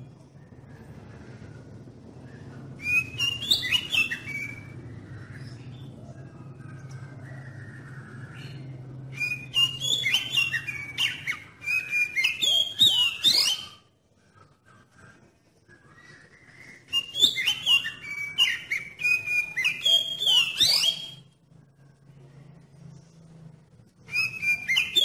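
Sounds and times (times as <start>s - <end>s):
bird singing whistled notes: 2.2s - 5.9s, 7.4s - 13.9s, 15.8s - 21.4s, 24.0s - 25.0s.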